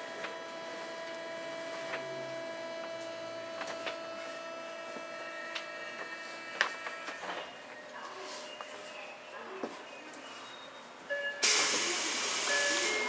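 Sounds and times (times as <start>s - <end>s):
electrical equipment hum and whine: 0.0s - 13.0s.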